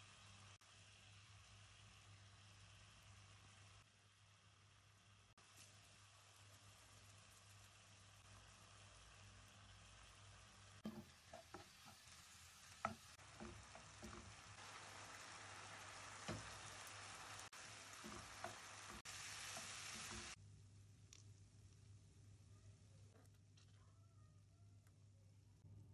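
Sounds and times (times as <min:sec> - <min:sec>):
chicken and onion sizzling: 0:00.0 - 0:20.4
spoon knocking against pan: 0:10.8 - 0:12.0, 0:12.8 - 0:14.4.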